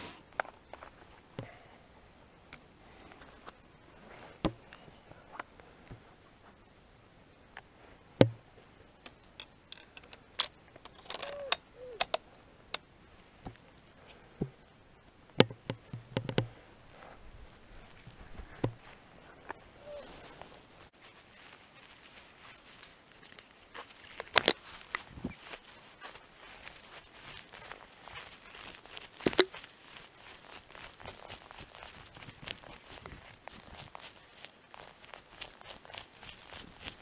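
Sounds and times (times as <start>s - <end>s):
rifle handling clicks and knocks: 9.0s - 12.8s, 15.4s - 16.6s.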